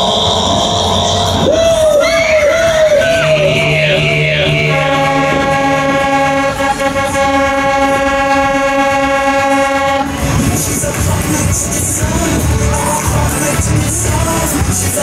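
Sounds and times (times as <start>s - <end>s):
wavering siren-like tone: 2.0s - 10.0s
horn-like chord: 3.0s - 10.2s.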